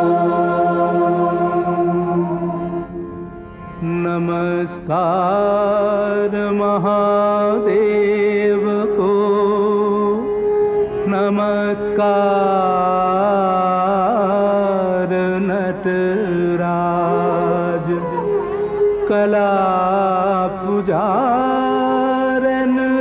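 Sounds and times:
steady drone: 0:00.0 - 0:06.0, 0:16.6 - 0:20.8
person singing ornamented lines: 0:00.0 - 0:23.0.

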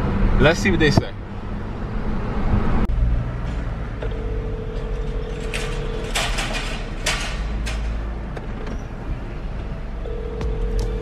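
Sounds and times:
car rumble: 0:00.0 - 0:11.0
telephone ringback tone: 0:04.1 - 0:06.1, 0:10.0 - 0:11.0.

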